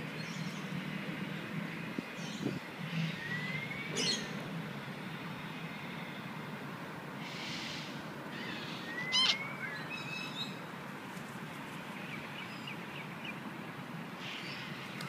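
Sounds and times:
outdoor background hum: 0.0 - 15.0
bird whistling call: 8.8 - 10.4.

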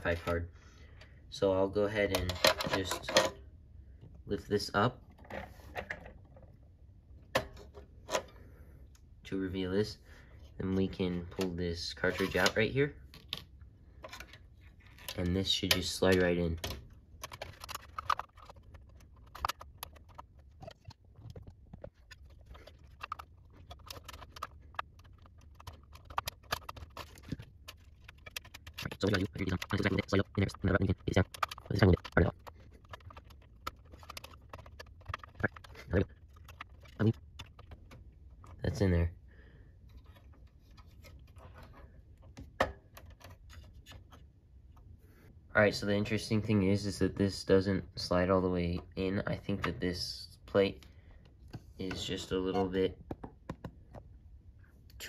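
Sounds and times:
metal and plastic clicks: 12.2 - 38.7.

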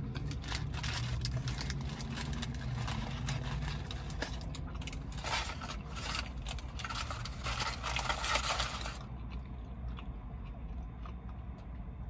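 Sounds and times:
crinkling paper wrapper: 0.0 - 9.1.

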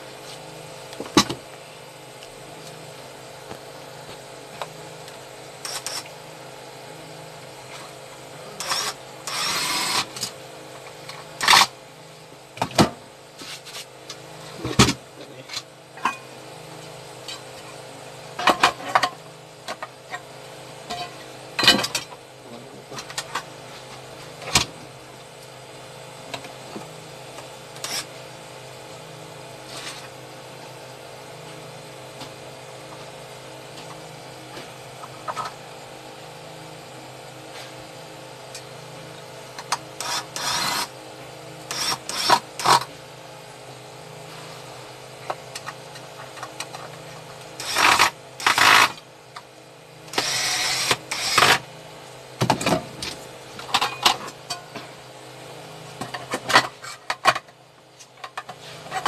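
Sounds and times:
steady hum: 0.0 - 59.0
electric screwdriver driving screws: 5.6 - 6.1, 8.6 - 10.3, 27.8 - 28.1, 40.0 - 40.9, 41.7 - 42.9, 47.6 - 49.0, 50.1 - 51.6.

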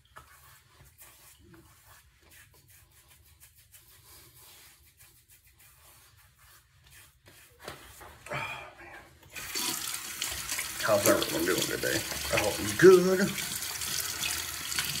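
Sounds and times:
hands rubbing a beard: 0.0 - 8.3, 10.8 - 13.4.

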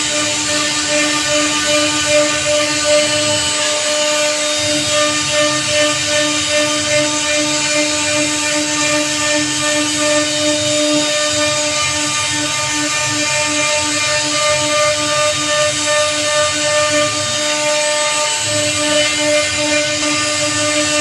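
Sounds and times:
router spindle cutting wood: 0.0 - 21.0.

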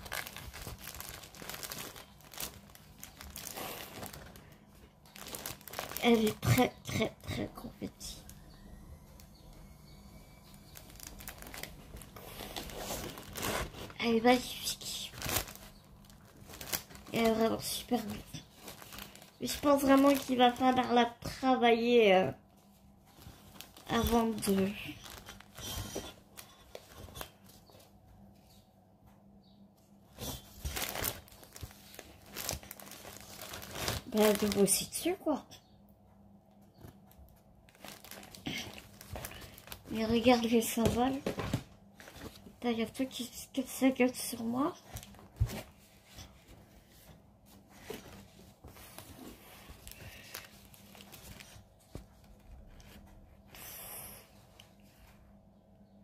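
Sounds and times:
canvas rustling and crinkling: 0.0 - 7.2, 10.4 - 21.1, 21.8 - 28.0, 30.1 - 35.2, 36.8 - 43.2, 44.3 - 53.4.

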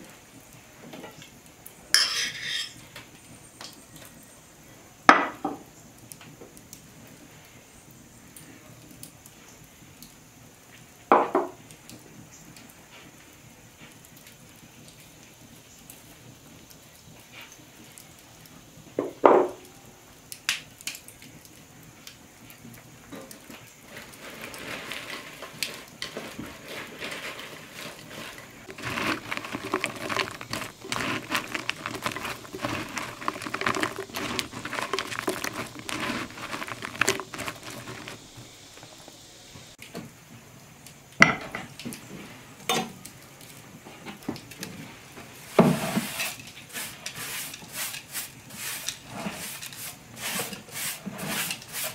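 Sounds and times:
bread cubes rustling in bowl: 23.9 - 39.2.

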